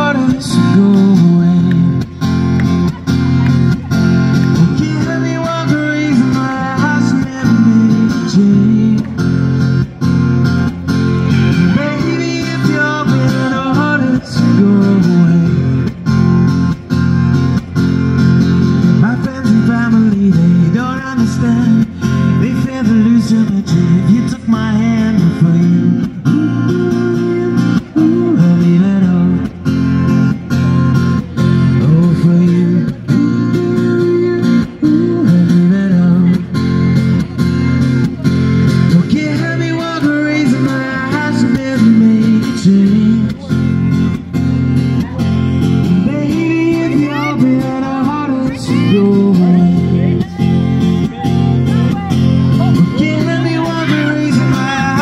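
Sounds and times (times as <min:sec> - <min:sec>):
man singing into microphone: 0:00.0 - 0:02.2, 0:04.4 - 0:10.0, 0:11.3 - 0:16.1, 0:18.8 - 0:30.3, 0:31.4 - 0:36.7, 0:38.8 - 0:43.9, 0:45.8 - 0:55.0
acoustic guitar strumming: 0:00.0 - 0:55.0.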